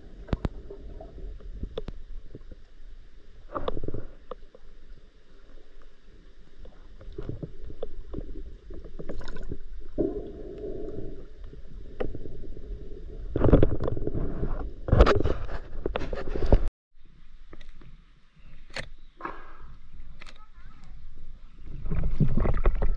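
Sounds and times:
water rushing and gurgling: 0.0 - 14.9
underwater clicks and knocks: 6.6 - 10.1, 11.4 - 12.5, 13.3 - 16.6, 21.8 - 22.9.

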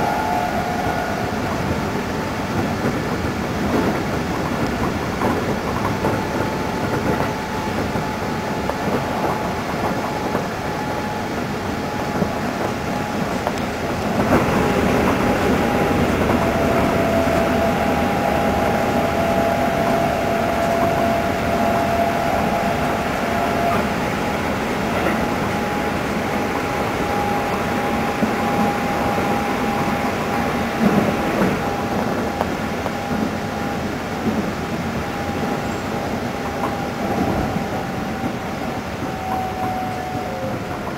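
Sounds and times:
train running gear whine: 0.0 - 40.9
train wheels rumbling on rails: 0.0 - 40.9.

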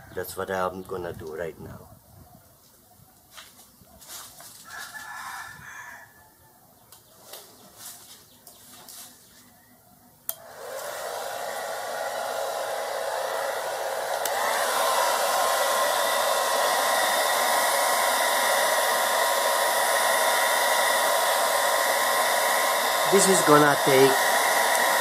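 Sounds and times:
hair dryer switch click: 10.3 - 11.0, 14.0 - 15.0, 24.2 - 25.0
hair dryer blowing: 10.3 - 25.0
steady motor whine: 10.3 - 25.0.

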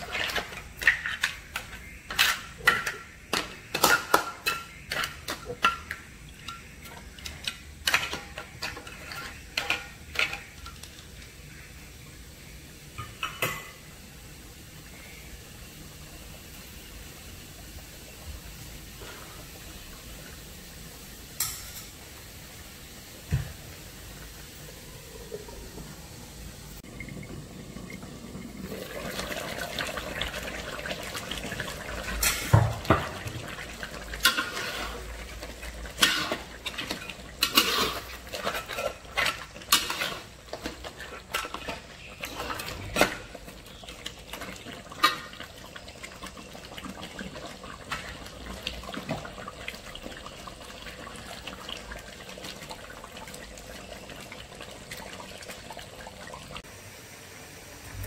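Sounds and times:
spatula scraping a wok: 0.0 - 5.9, 6.7 - 10.6, 34.0 - 43.8
thick sauce bubbling in a wok: 0.0 - 12.5, 22.2 - 58.0.

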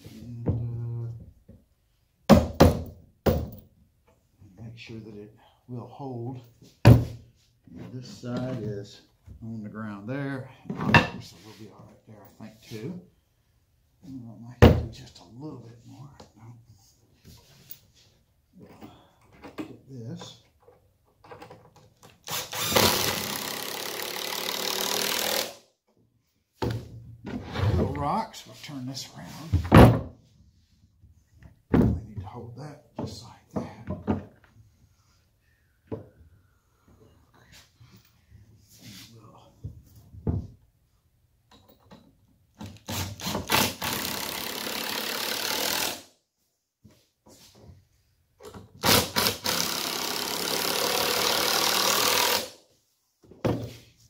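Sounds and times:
impact driver driving screw: 22.2 - 25.6, 42.6 - 46.1, 48.8 - 52.6.

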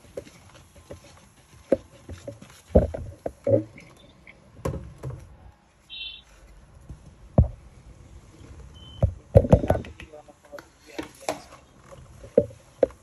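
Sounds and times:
short high chirp: 5.9 - 6.3.

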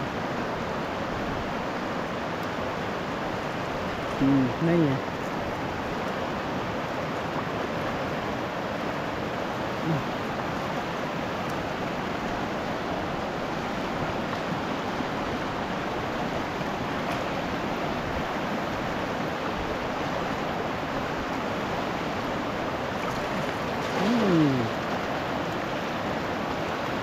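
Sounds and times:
river rushing over rocks: 0.0 - 27.0
short falling voice sound: 24.0 - 24.8.

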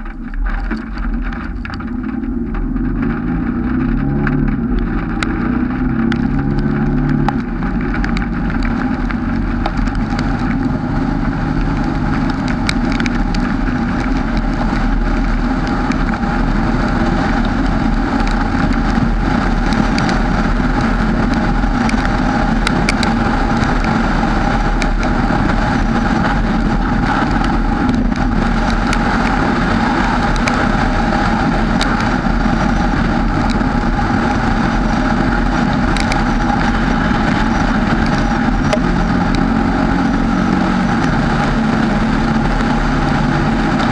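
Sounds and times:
road noise: 0.0 - 43.9
vehicle engine rumble: 0.0 - 43.9
light ticks: 20.8 - 24.0, 35.8 - 39.5.

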